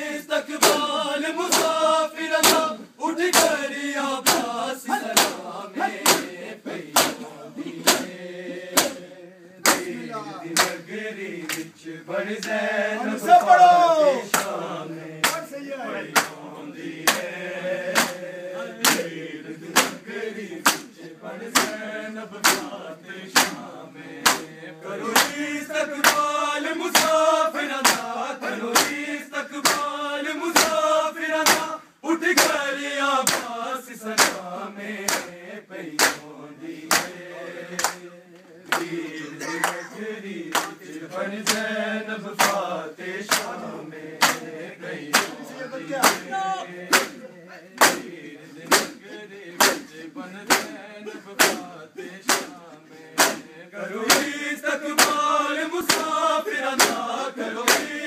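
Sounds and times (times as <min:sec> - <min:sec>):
men chanting together: 0:00.0 - 0:58.0
palms slapping bare chests: 0:00.6 - 0:03.6, 0:04.2 - 0:10.8, 0:15.2 - 0:15.5, 0:17.9 - 0:20.0, 0:20.6 - 0:20.9, 0:21.5 - 0:24.5, 0:25.1 - 0:31.7, 0:32.3 - 0:35.3, 0:35.9 - 0:36.3, 0:36.9 - 0:37.2, 0:37.8 - 0:40.8, 0:42.4 - 0:42.7, 0:43.3 - 0:47.2, 0:47.8 - 0:50.8, 0:51.4 - 0:54.4, 0:55.0 - 0:58.0.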